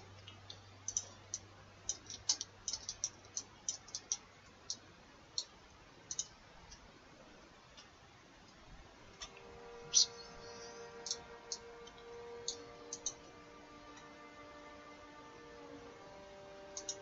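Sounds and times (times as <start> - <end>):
mouse and keyboard clicks: 1.9 - 4.8, 16.8 - 17.0.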